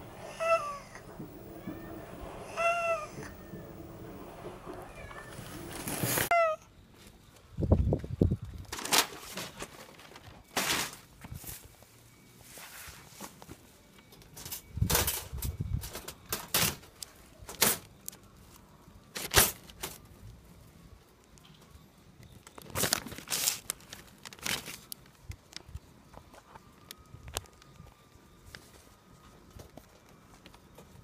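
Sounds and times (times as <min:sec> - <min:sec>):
newspaper crinkling and rustling: 0:05.0 - 0:06.3, 0:08.7 - 0:11.6, 0:22.5 - 0:25.6.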